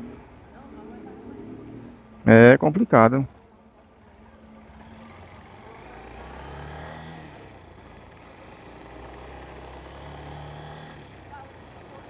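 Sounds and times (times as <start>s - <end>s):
road and wind noise: 0.0s - 12.0s
motorcycle engine running: 3.9s - 12.0s.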